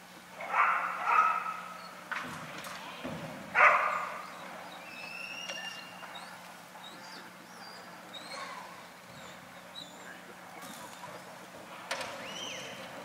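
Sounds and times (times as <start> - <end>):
faint steady hum: 0.0 - 13.0
dog barking: 0.4 - 1.8, 3.5 - 4.2
thin high whistles: 4.8 - 8.5, 12.2 - 12.9.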